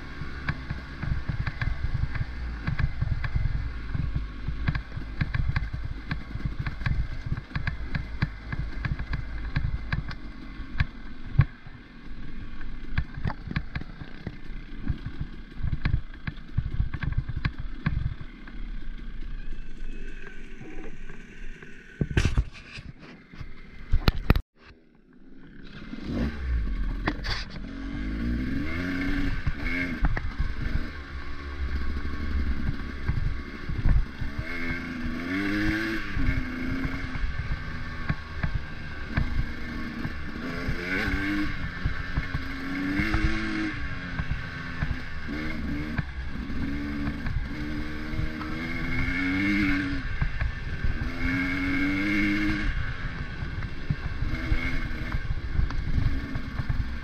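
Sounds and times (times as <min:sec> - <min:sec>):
wind and road noise: 0:00.0 - 0:57.0
vehicle engine revving: 0:25.3 - 0:57.0.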